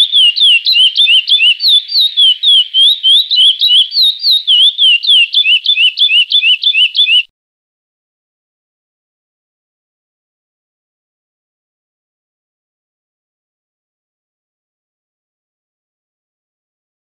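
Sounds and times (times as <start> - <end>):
finch singing whistled notes: 0.0 - 7.3.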